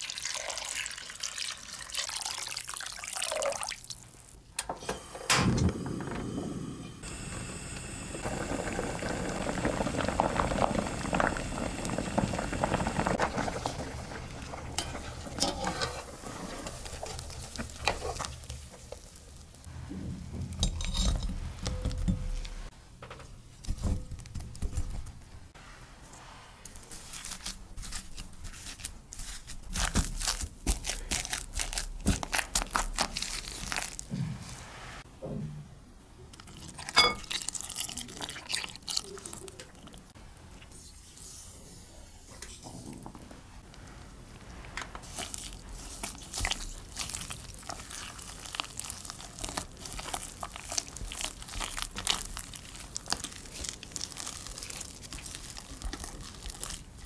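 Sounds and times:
potatoes boiling in a pot: 0:00.0 - 0:04.4, 0:07.0 - 0:19.7, 0:44.0 - 0:57.0.

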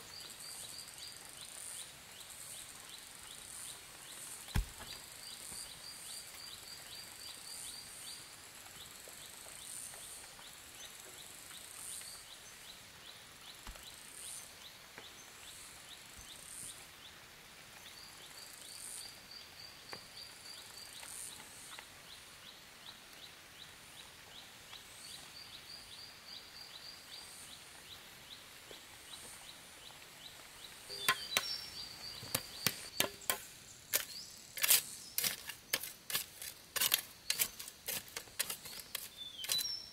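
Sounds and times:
sharp knocks: 0:04.5 - 0:05.0
high-pitched trilling bird calls: 0:30.9 - 0:33.3.

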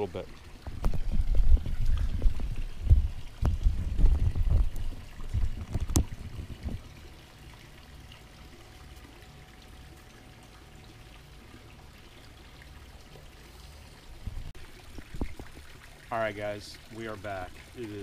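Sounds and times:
faint steady hum: 0:00.0 - 0:18.0
wind rumble on microphone: 0:00.6 - 0:07.0, 0:14.2 - 0:15.7.

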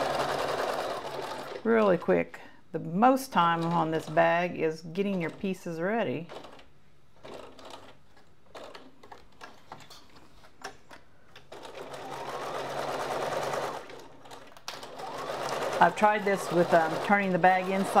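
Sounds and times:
sewing machine stitching: 0:00.0 - 0:02.1, 0:03.4 - 0:05.6, 0:06.2 - 0:09.6, 0:11.5 - 0:18.0.

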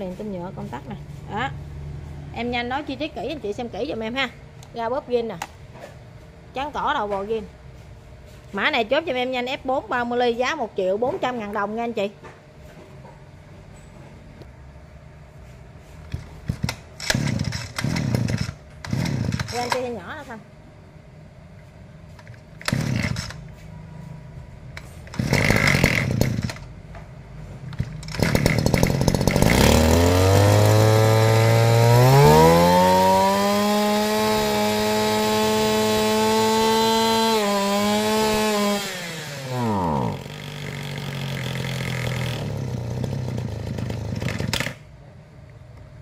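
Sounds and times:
brush cutter engine revving: 0:16.1 - 0:20.0, 0:22.6 - 0:23.5, 0:24.8 - 0:26.7, 0:27.8 - 0:44.8
starter cord pulls: 0:16.1 - 0:20.0, 0:22.2 - 0:23.5, 0:24.8 - 0:26.7, 0:27.7 - 0:32.4, 0:38.2 - 0:44.8.

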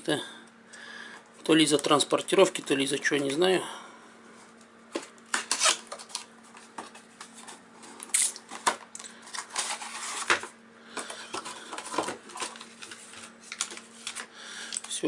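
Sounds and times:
card and paper rustling: 0:04.9 - 0:14.3.

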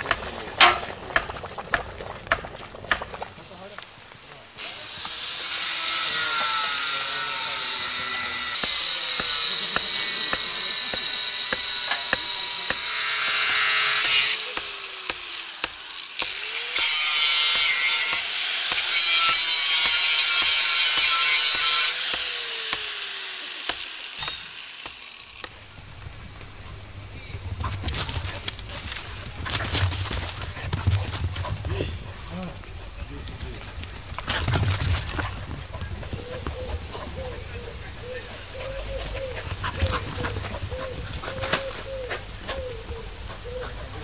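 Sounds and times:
angle grinder grinding steel: 0:04.6 - 0:25.6.

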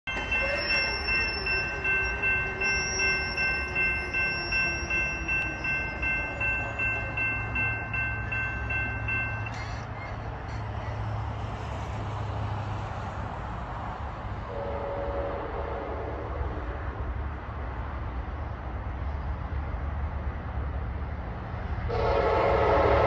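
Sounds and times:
railroad crossing bell ringing: 0:00.0 - 0:10.7
low rumble of train: 0:00.0 - 0:23.0.

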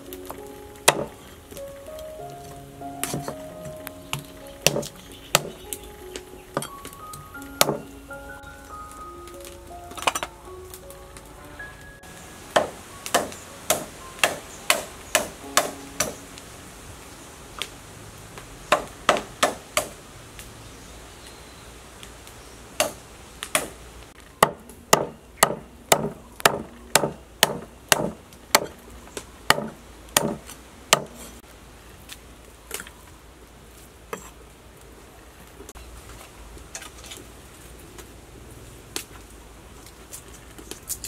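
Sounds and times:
knife chopping on wooden board: 0:29.5 - 0:30.4, 0:31.0 - 0:31.2.

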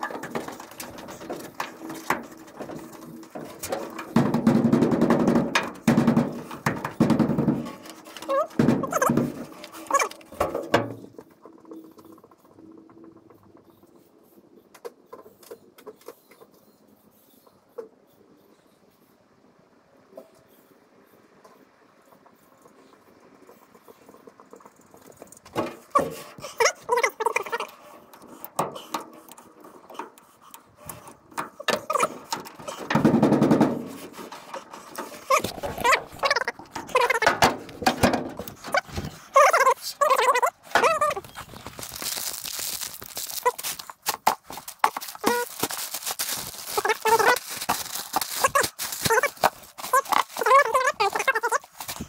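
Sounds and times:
rubber seal squeaking: 0:06.1 - 0:11.6, 0:25.7 - 0:29.0, 0:30.8 - 0:33.1, 0:33.9 - 0:52.0.

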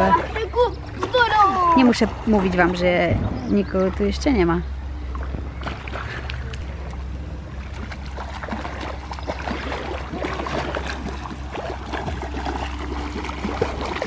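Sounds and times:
pool water splashing: 0:00.0 - 0:14.0.

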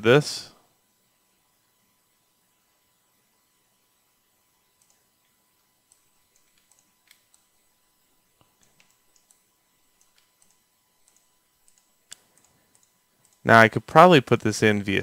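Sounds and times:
low hiss: 0:00.0 - 0:15.0
mouse and keyboard clicks: 0:05.9 - 0:07.5, 0:08.6 - 0:09.4, 0:10.0 - 0:13.4.

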